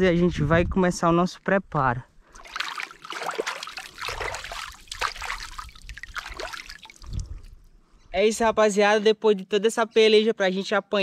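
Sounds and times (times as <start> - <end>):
hands splashing water: 2.3 - 7.6.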